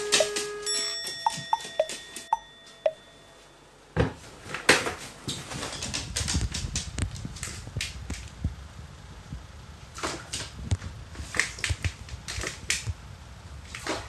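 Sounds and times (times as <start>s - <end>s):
plinking sound effect notes: 0.0s - 3.2s.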